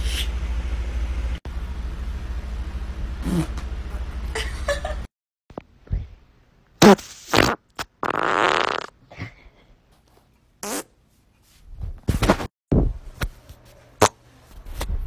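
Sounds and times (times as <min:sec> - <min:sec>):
person farting: 0:03.2 - 0:03.6, 0:06.8 - 0:09.0, 0:10.6 - 0:10.9.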